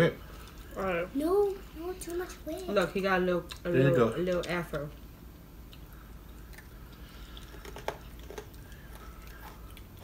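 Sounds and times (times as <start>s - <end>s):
girl chewing quietly: 5.6s - 10.0s.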